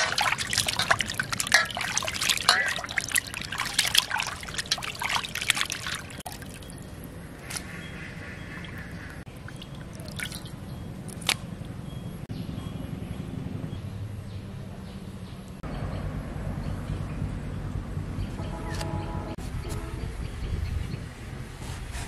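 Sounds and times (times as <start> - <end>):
wet fish squishing into basket: 0.0 - 11.8
sharp slaps: 11.1 - 11.5.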